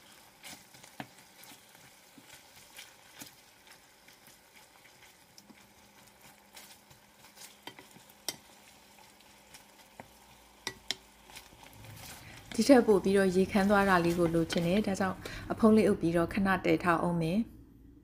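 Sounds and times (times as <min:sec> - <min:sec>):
meat sizzling in sauce: 0:00.0 - 0:15.4
wooden spatula scraping pan: 0:10.7 - 0:15.4.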